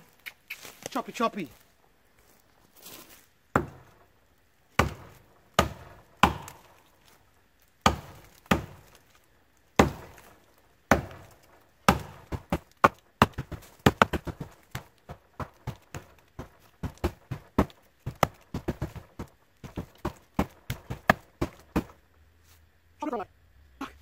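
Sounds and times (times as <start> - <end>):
axe chopping wood: 3.5 - 4.0, 4.8 - 7.2, 7.8 - 9.2, 9.8 - 22.0.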